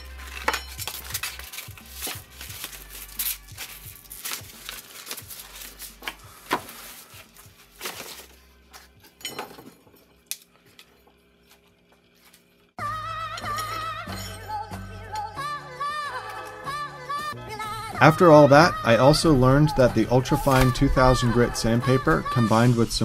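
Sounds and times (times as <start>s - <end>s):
sandpaper sheets rustling: 0.1s - 8.9s, 20.3s - 20.8s.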